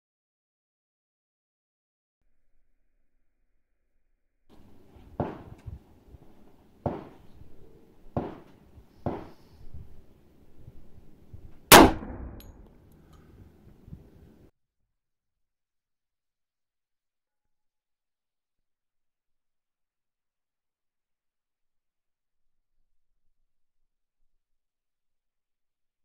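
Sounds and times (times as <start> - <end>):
sharp knocks: 4.6 - 5.8, 6.8 - 7.4, 8.1 - 9.4
pistol shot: 11.7 - 12.6.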